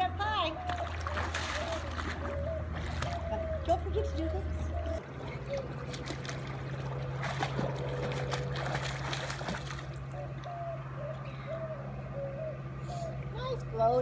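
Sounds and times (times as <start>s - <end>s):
steady low hum: 0.0s - 14.0s
child splashing in pool: 0.6s - 3.6s, 5.1s - 10.2s.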